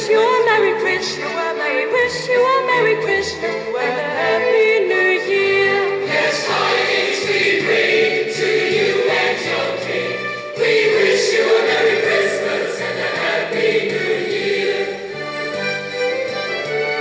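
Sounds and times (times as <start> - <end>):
choir singing held notes: 5.9 - 15.6.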